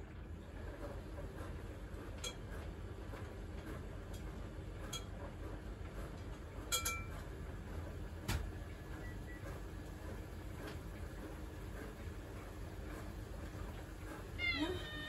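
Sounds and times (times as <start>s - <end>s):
dishes and glassware clinking: 6.7s - 7.1s.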